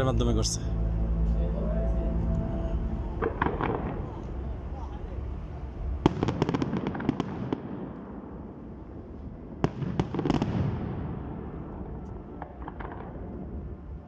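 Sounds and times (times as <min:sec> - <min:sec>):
continuous rumble: 0:00.0 - 0:14.0
fireworks bursting: 0:06.0 - 0:11.7.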